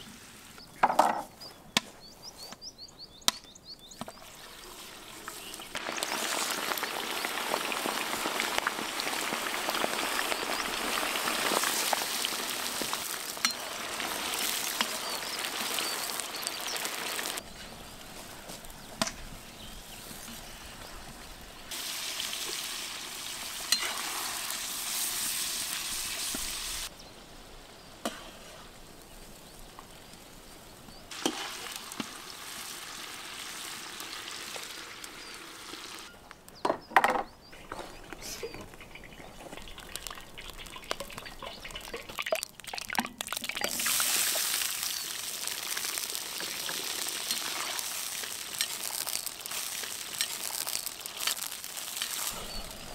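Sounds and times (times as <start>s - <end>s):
oil frying and sizzling: 4.2s - 36.1s, 37.6s - 52.9s
onions frying: 4.2s - 36.1s, 38.7s - 52.9s.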